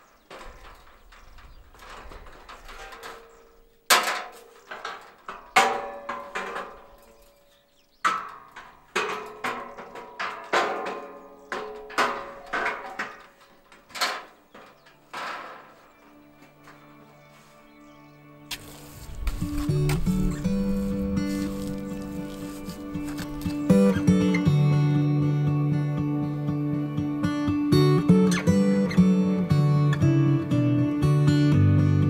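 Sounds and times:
steel scaffold knocking and clanking: 0.0 - 16.8, 18.5 - 24.1.

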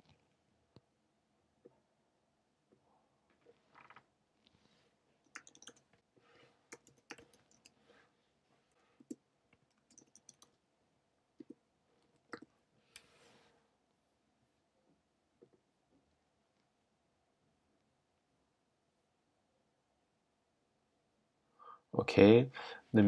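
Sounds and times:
computer keyboard typing clicks: 5.3 - 5.8, 6.7 - 7.7, 9.0 - 10.6.

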